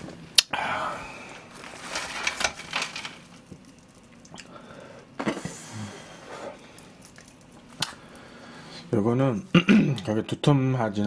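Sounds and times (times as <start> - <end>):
low room noise: 0.0 - 11.0
crisp breaded cutlet crackling: 1.5 - 4.8.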